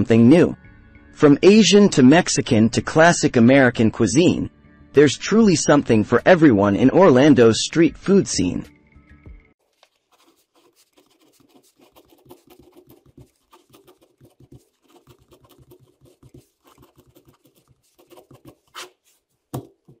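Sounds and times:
ballpoint pen scratching on paper: 0:09.6 - 0:20.0.

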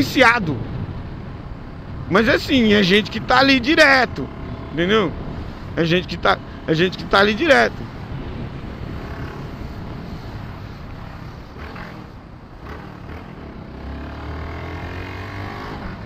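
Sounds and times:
wind and road noise: 0:00.0 - 0:16.0
motorcycle engine running: 0:00.6 - 0:14.5.

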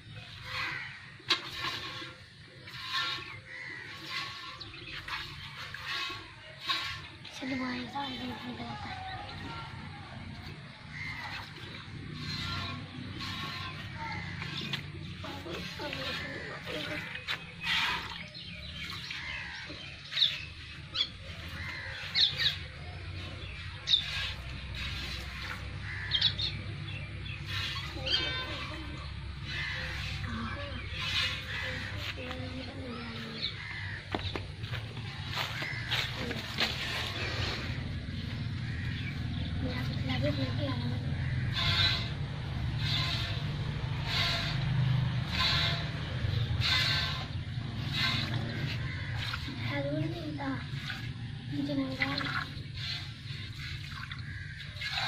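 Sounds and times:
birds chirping: 0:00.0 - 0:55.0
milk squirting into metal pail: 0:00.3 - 0:07.4, 0:46.6 - 0:55.0.

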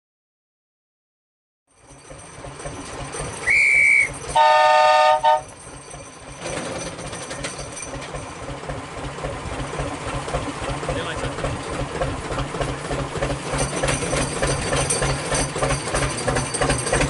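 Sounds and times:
diesel engine running: 0:01.7 - 0:17.0
whistle blast: 0:03.4 - 0:05.5
locomotive horn blast: 0:03.4 - 0:05.6.

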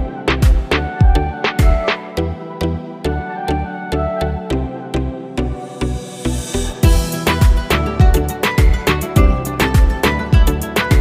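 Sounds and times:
background music with bass and percussion: 0:00.0 - 0:04.7, 0:05.4 - 0:11.0.

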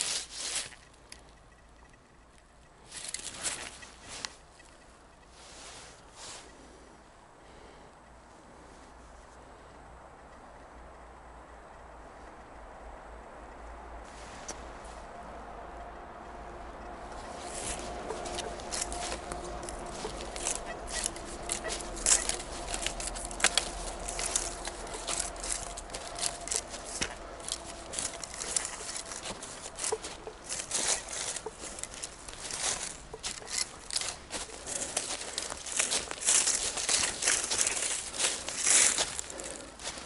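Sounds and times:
dry leaves crackling and rustling: 0:00.0 - 0:01.2, 0:02.8 - 0:04.8, 0:16.4 - 0:40.0.

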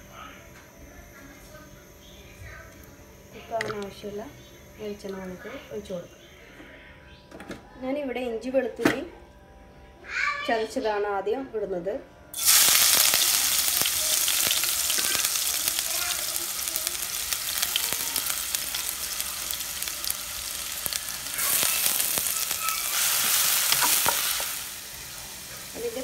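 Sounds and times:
onions sizzling in hot oil: 0:12.4 - 0:26.0.

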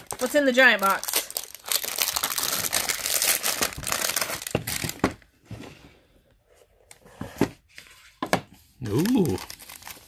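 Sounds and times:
plastic wrapper crinkling: 0:00.0 - 0:05.0, 0:08.8 - 0:10.0.

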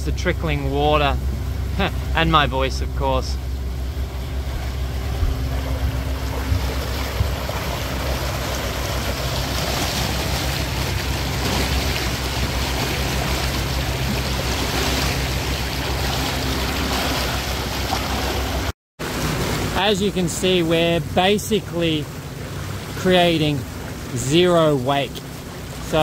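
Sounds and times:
low even hum: 0:00.0 - 0:26.0
water churning in boat wake: 0:00.0 - 0:26.0.

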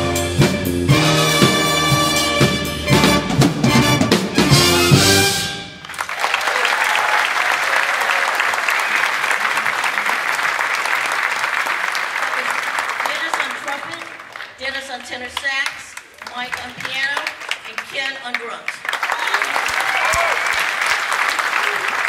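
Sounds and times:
drum hits: 0:00.0 - 0:05.6
jazz big band playing: 0:00.0 - 0:06.0
audience applauding: 0:05.8 - 0:14.6, 0:15.4 - 0:22.0.

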